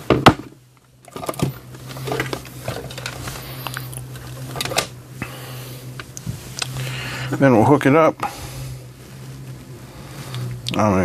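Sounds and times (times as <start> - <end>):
handling clicks and rustles: 0.0 - 5.1, 5.8 - 8.1
steady low hum: 0.0 - 11.0.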